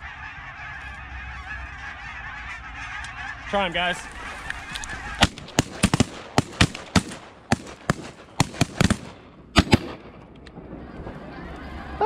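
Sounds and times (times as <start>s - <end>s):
geese honking: 0.0s - 9.1s, 10.8s - 12.0s
shotguns firing: 5.1s - 10.3s.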